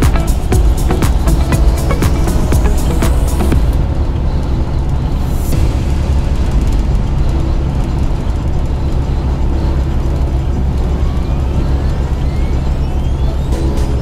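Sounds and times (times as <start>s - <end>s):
faint rising whine: 0.0s - 14.0s
truck engine and tyre rumble: 0.0s - 14.0s.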